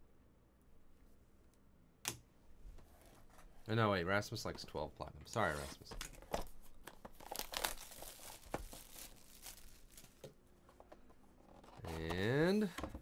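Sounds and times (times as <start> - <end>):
plastic shrink wrap crinkling and tearing: 7.2 - 10.3.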